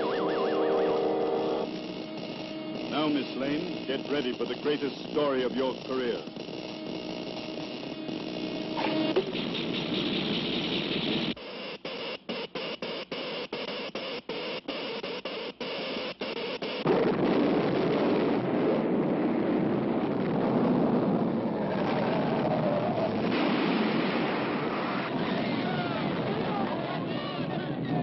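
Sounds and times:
electric sparks crackling: 0:00.0 - 0:11.4
earthquake rumble: 0:16.9 - 0:28.0.

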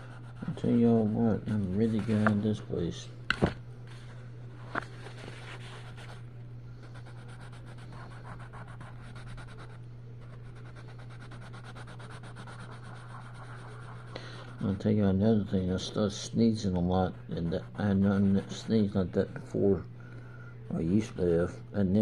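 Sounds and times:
steady low hum: 0:00.0 - 0:22.0
pencil scratching on paper: 0:06.9 - 0:14.7, 0:17.0 - 0:19.0.

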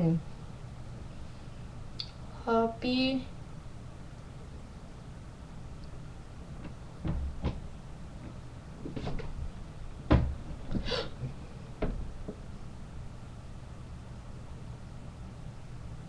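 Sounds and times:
low steady hum: 0:00.0 - 0:16.0
dull knocks and bumps: 0:06.6 - 0:12.5.

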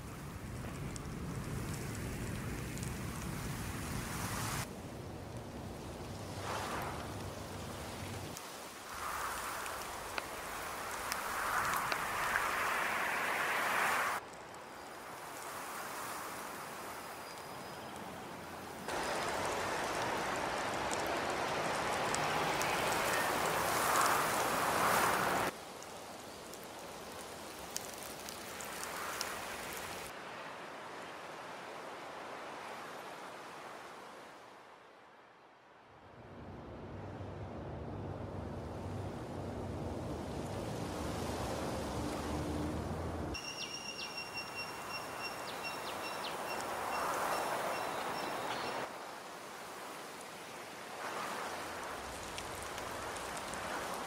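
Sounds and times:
hiss with high steady whine: 0:05.8 - 0:14.2.

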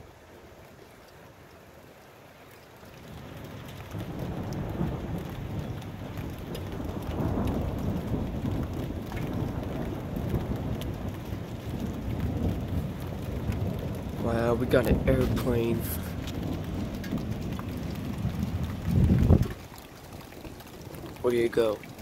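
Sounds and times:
rain falling: 0:00.0 - 0:22.0
deep uneven rumble: 0:03.9 - 0:22.0.

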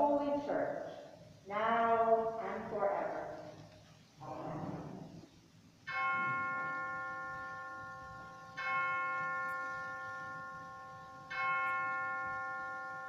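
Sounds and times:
bell ringing: 0:05.9 - 0:13.0.

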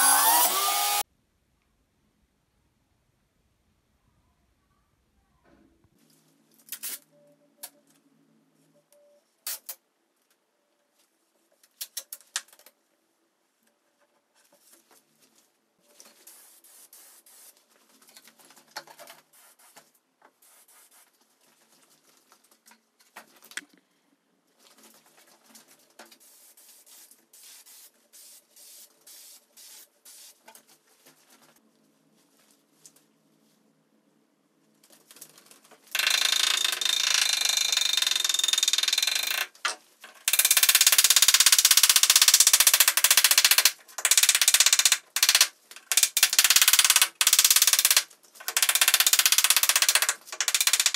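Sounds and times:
sharp clicks and knocks: 0:36.0 - 0:50.9.

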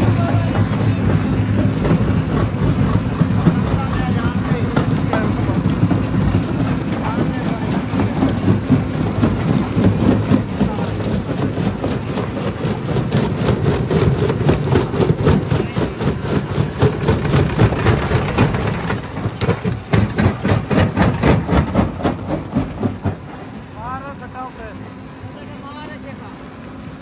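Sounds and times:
crusher machine rumble: 0:00.0 - 0:27.0.

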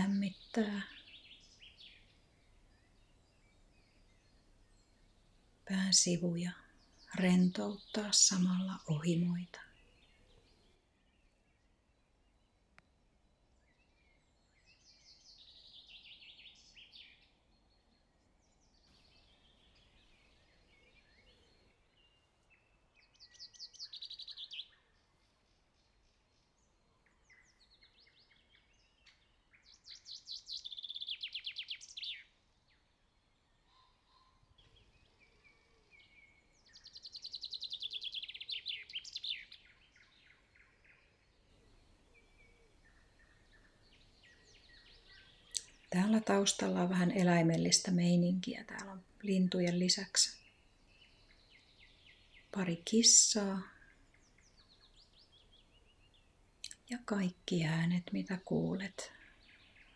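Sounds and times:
soft bird chirps: 0:00.0 - 0:59.9
songbird phrase of high notes: 0:56.6 - 0:59.1.

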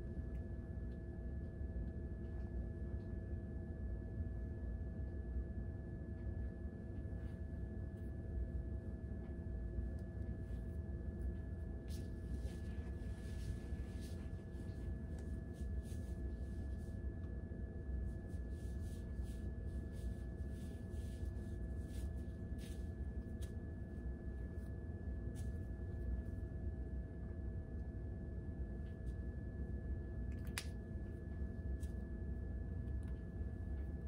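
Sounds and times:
steady low hum: 0:00.0 - 0:34.0
hands rustling through hair: 0:11.8 - 0:17.0, 0:18.3 - 0:23.9.

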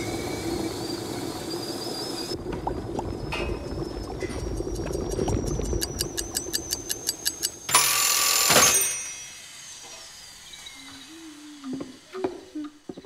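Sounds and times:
toaster timer ticking: 0:04.3 - 0:08.2
toaster ringing clatter: 0:06.0 - 0:10.1.

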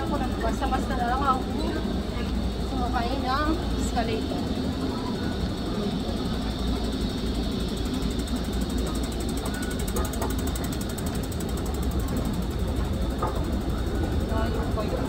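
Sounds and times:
low rumble of station concourse: 0:00.0 - 0:15.0
fast mechanical ticking: 0:05.4 - 0:15.0.

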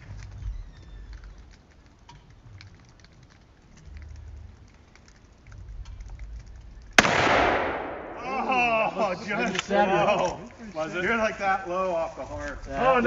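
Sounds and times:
faint light pattering: 0:00.0 - 0:07.8, 0:08.5 - 0:13.0
low uneven rumble: 0:00.0 - 0:13.0.

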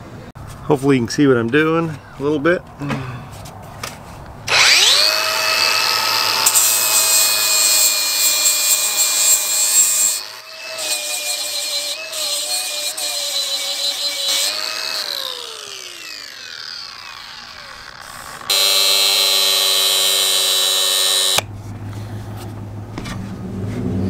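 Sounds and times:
angle grinder sanding wood: 0:04.5 - 0:21.4
grinder spinning down: 0:04.5 - 0:21.4
grinder whine running free: 0:04.5 - 0:21.5.

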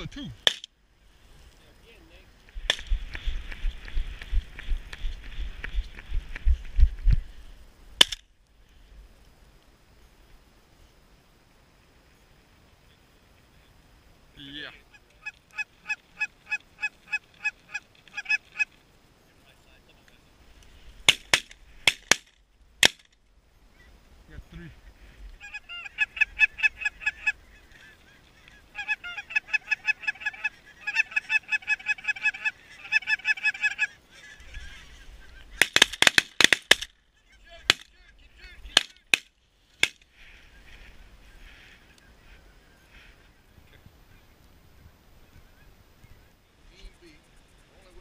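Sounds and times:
wind rumble on microphone: 0:02.5 - 0:07.6
geese honking: 0:14.4 - 0:18.8, 0:25.0 - 0:36.1.

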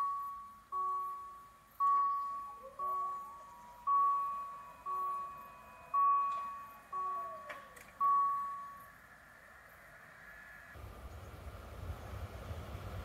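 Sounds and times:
level crossing warning bell: 0:00.0 - 0:09.2
train rumbling: 0:02.9 - 0:13.0.

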